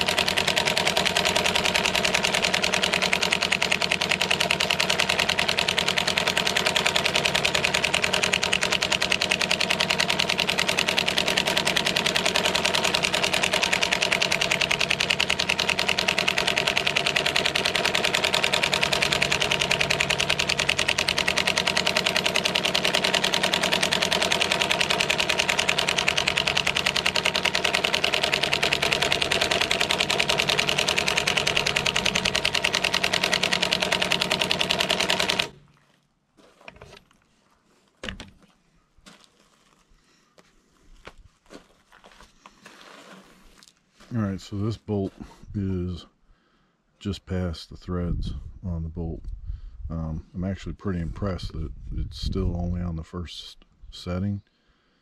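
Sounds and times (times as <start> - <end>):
impact wrench rattling: 0.0 - 35.7.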